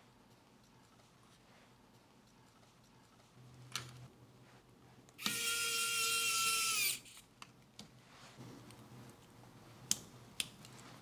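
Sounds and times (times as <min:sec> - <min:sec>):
electric screwdriver motor whining: 0:05.2 - 0:07.0.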